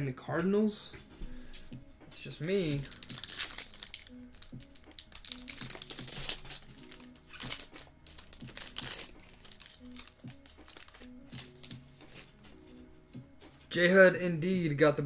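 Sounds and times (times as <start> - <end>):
foil wrapper crinkling and tearing: 2.4 - 12.3.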